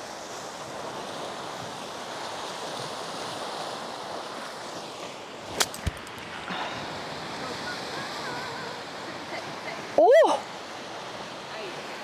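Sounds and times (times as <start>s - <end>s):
ocean surf: 0.0s - 12.0s
wind: 0.0s - 12.0s
golf club striking ball: 5.5s - 6.2s.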